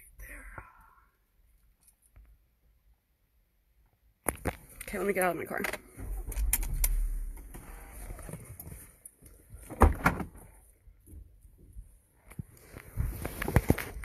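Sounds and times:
phone handling clicks and rumble: 4.2 - 10.4
soft rustling: 12.2 - 14.0.

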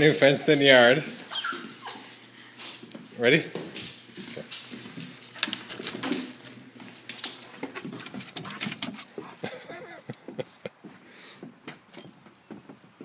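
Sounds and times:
collar tags jingling: 0.0 - 13.0
dog claws on wooden deck: 3.7 - 13.0.

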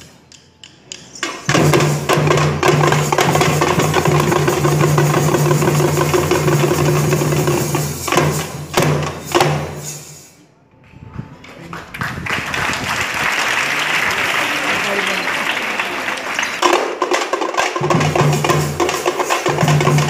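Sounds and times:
music with drumming and percussion: 0.0 - 10.4, 16.4 - 20.0.

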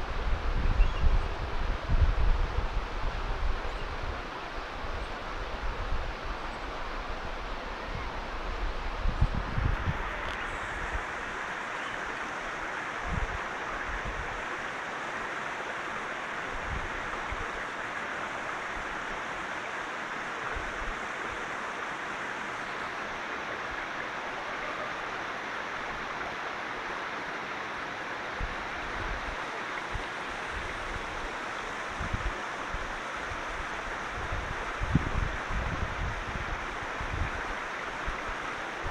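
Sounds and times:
wind buffeting microphone: 0.0 - 11.3, 13.0 - 14.4, 28.4 - 38.9
stream running over rocks: 0.0 - 38.9.

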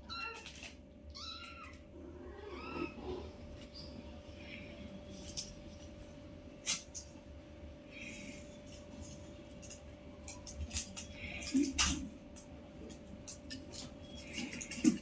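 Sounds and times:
faint steady hum: 0.0 - 15.0
kittens scratching plastic basket: 8.0 - 15.0.

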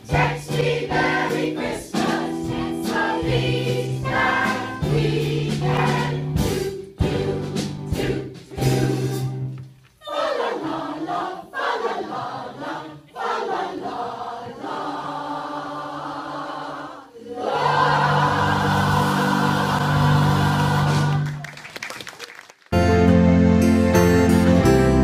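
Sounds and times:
choir singing: 0.0 - 21.4.

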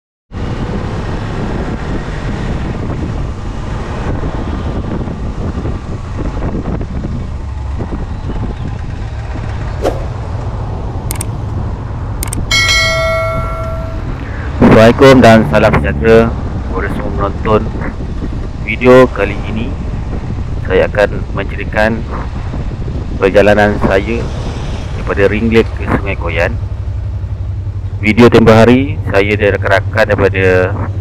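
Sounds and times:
road noise: 0.3 - 31.0
bell-like notification chime: 12.5 - 14.4.

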